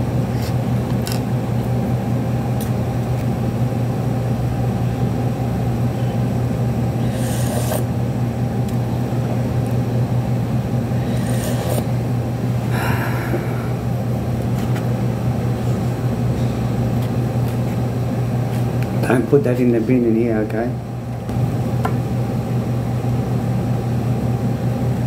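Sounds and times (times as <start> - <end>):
low machine hum: 0.0 - 25.0
eating with plastic spoon: 0.3 - 1.8, 7.1 - 7.9, 11.0 - 11.9.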